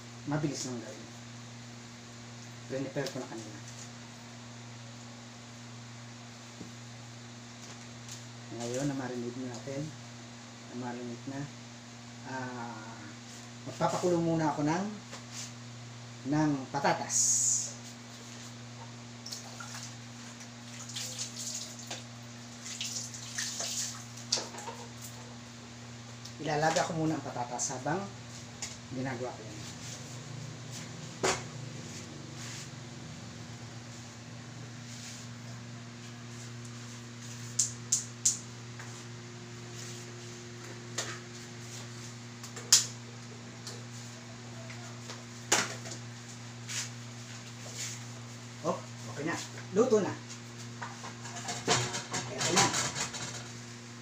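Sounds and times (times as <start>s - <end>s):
steady low hum: 0.0s - 54.0s
water running and splashing in sink: 19.2s - 24.4s.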